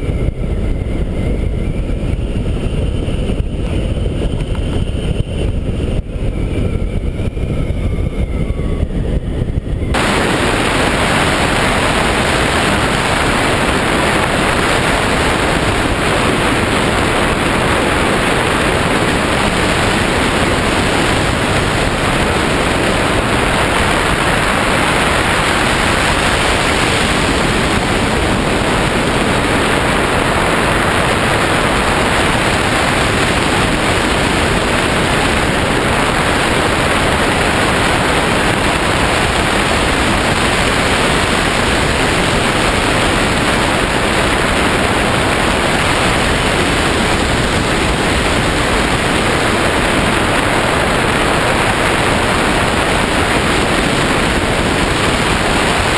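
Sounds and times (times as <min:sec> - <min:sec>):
wind rushing over microphone: 0:00.0 - 0:55.9.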